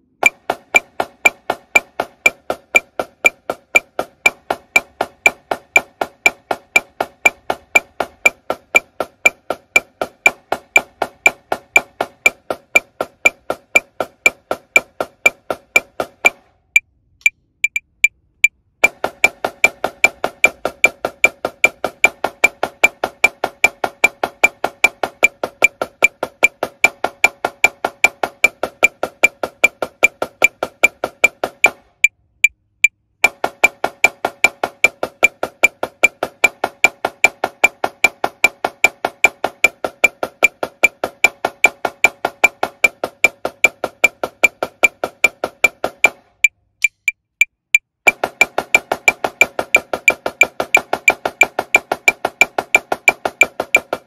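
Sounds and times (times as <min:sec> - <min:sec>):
metronome click: 0:00.0 - 0:09.9, 0:15.3 - 0:19.4, 0:46.4 - 0:48.9
snare drum played with sticks: 0:00.0 - 0:16.6, 0:18.8 - 0:32.1, 0:33.2 - 0:54.0.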